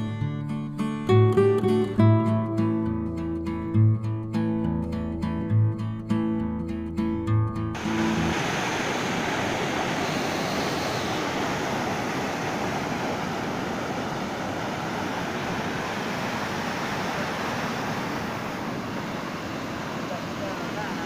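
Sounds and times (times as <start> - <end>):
river white water roaring: 7.8 - 21.0.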